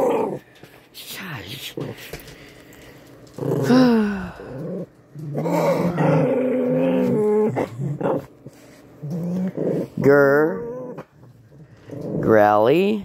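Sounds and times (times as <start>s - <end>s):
small dogs growling: 0.0s - 0.5s, 3.2s - 13.0s.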